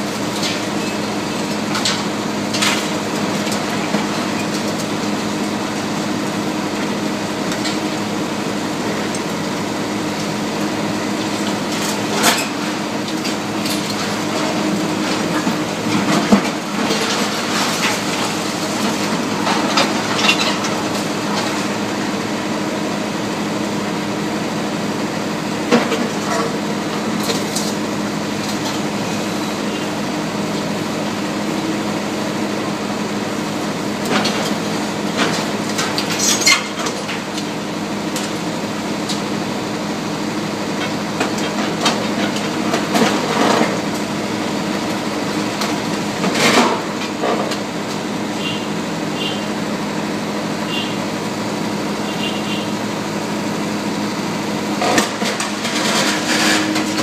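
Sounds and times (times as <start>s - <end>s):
excavators droning: 0.0s - 57.0s
falling debris crashing: 11.1s - 22.0s, 54.7s - 57.0s.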